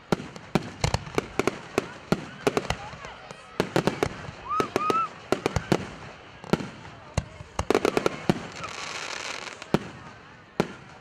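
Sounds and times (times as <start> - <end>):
fireworks bursting with sharp bangs: 0.0 - 11.0
fireworks crackling: 0.0 - 11.0.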